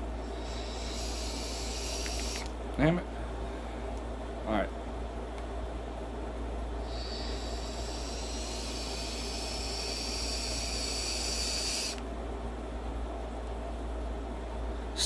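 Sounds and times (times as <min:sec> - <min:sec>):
vape airy hiss with whistle: 0:00.3 - 0:02.5, 0:06.8 - 0:12.0.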